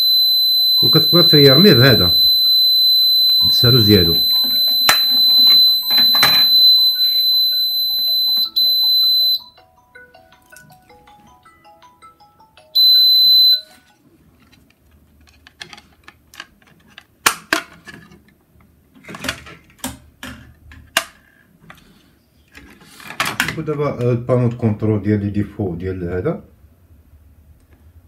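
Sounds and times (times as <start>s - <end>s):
high-pitched alarm buzzer: 0.0s - 9.5s, 12.8s - 13.7s.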